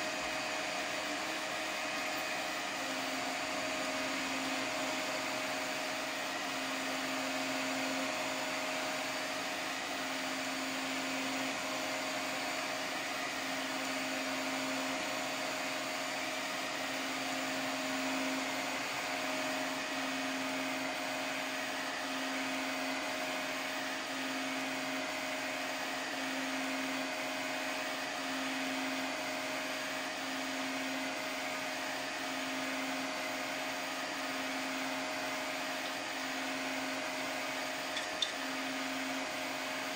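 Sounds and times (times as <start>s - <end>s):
fan whirring: 0.0s - 7.3s, 31.5s - 39.9s.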